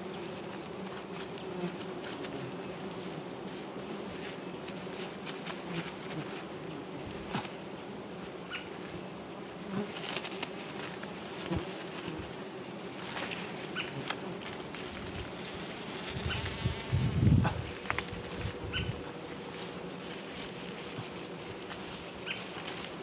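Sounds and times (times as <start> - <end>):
honeybees buzzing: 0.0 - 23.0.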